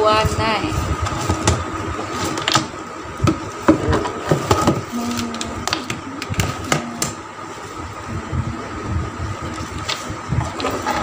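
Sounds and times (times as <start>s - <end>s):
rummaging through wooden drawers: 10.4s - 11.0s.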